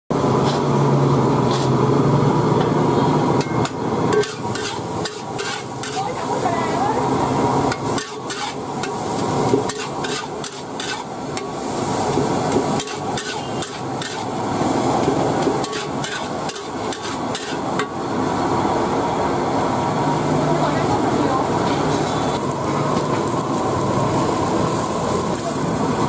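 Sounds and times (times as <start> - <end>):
frying hiss: 0.2 - 26.0
metal ladle clanking on a wok: 3.4 - 6.0, 12.5 - 14.3, 15.4 - 18.0.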